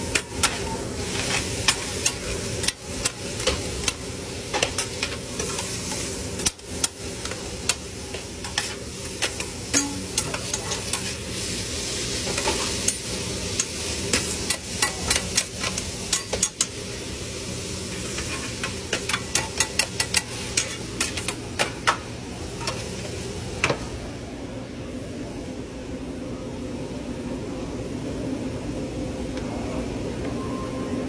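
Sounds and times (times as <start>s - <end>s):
food sizzling on a griddle: 0.0s - 24.0s
metal spatulas clacking on steel: 8.4s - 11.1s, 18.6s - 22.0s.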